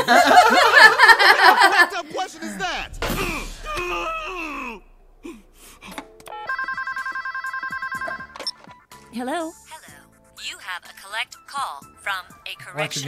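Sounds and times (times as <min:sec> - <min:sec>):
telephone ringing with electronic warble: 0:06.3 - 0:08.6.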